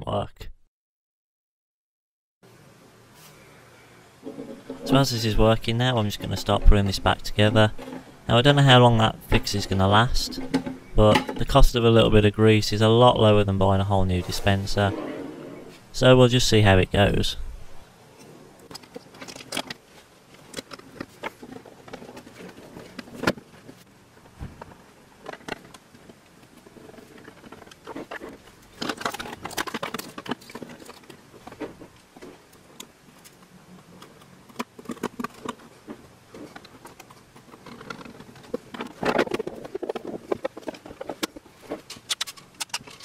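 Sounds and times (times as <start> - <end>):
plastic parts clicking and scraping: 6.0 - 11.6, 18.2 - 23.9, 24.6 - 43.0.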